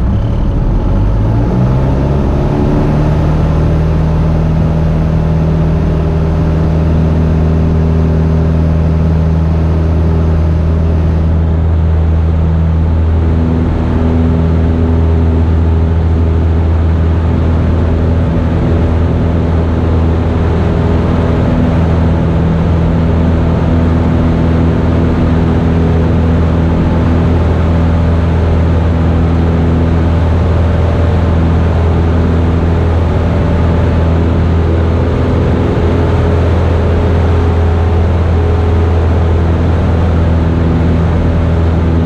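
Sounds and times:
propeller plane engine drone: 0.0s - 42.0s.

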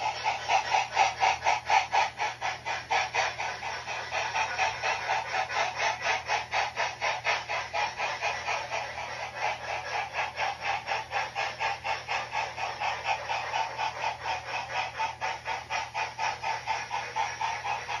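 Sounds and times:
model steam locomotive chuffing: 0.0s - 18.0s.

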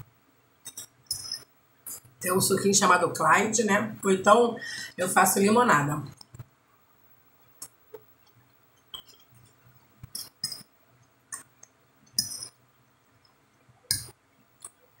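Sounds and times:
chewing and mouth clicks: 7.6s - 10.7s.

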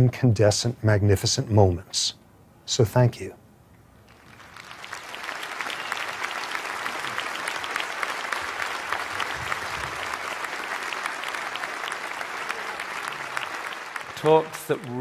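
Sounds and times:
audience applauding: 4.1s - 15.0s.

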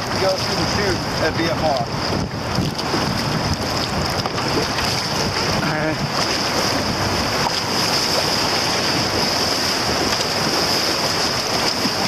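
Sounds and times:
rushing whitewater: 0.0s - 12.0s.

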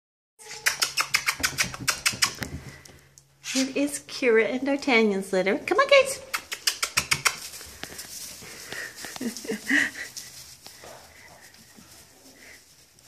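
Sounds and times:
puppy squeaks: 0.4s - 2.5s
quick clicks: 6.3s - 7.6s
puppies scrabbling in wood shavings: 6.4s - 13.0s.

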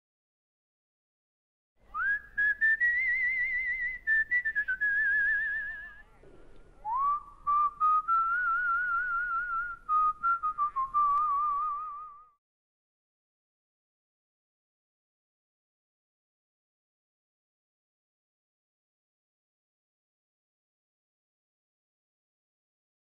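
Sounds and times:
person whistling a slow tune: 1.9s - 5.9s, 6.9s - 12.4s.

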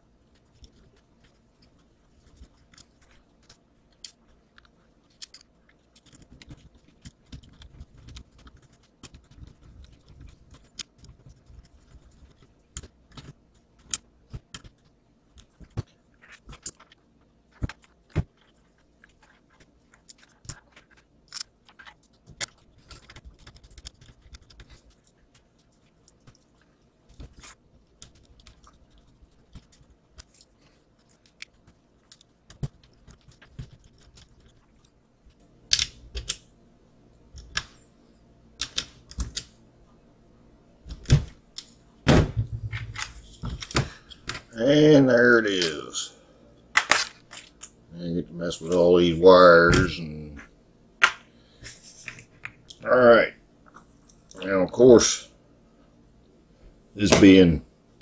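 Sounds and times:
small parts clicking and rustling: 0.2s - 36.5s, 45.3s - 46.1s, 46.7s - 47.8s.

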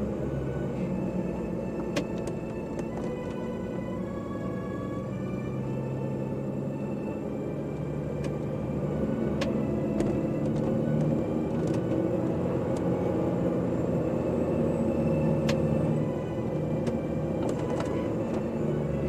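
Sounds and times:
diesel engine hum: 0.0s - 19.0s.

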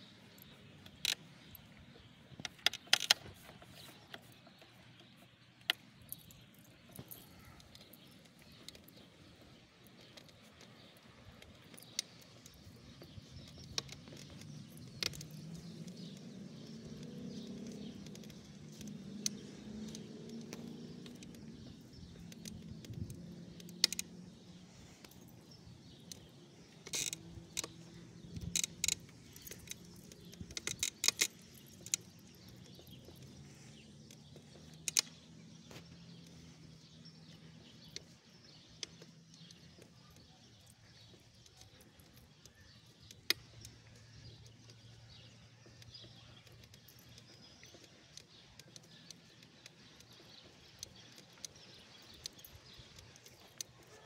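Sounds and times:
dog leash and collar jingling: 6.0s - 9.3s, 24.2s - 33.4s.

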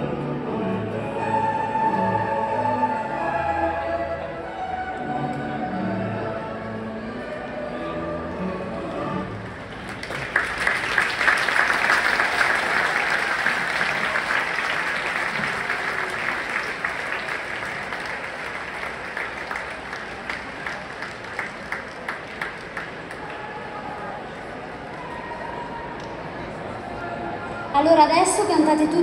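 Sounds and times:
music: 0.0s - 23.0s
stadium crowd applauding: 9.3s - 27.1s.

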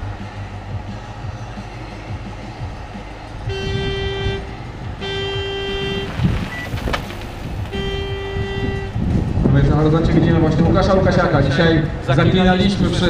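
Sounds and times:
horn blasts: 3.4s - 9.3s.

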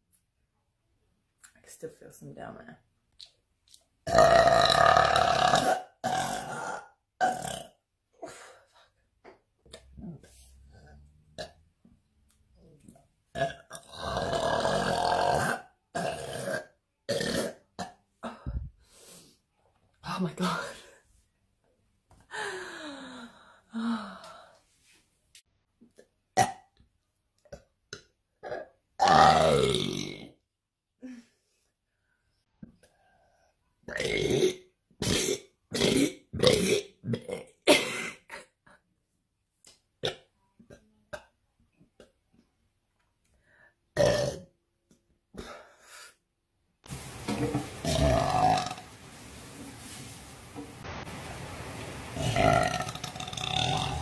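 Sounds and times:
woman burping loudly: 4.0s - 8.5s, 13.3s - 18.6s, 28.4s - 30.4s, 33.9s - 38.5s, 44.0s - 44.5s, 47.8s - 48.8s, 52.2s - 54.0s.

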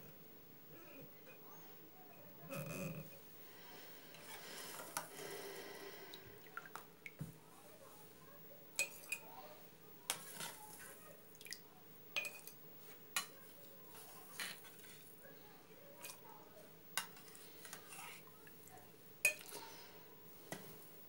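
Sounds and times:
metal spoon clinking on pot and jar: 12.2s - 12.6s.

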